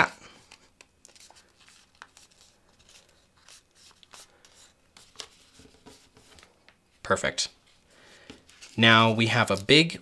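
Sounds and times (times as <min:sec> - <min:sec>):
soft paper crackles: 0:00.3 - 0:06.8, 0:08.3 - 0:10.0
paper rustling and crinkling: 0:00.4 - 0:06.6, 0:08.3 - 0:10.0.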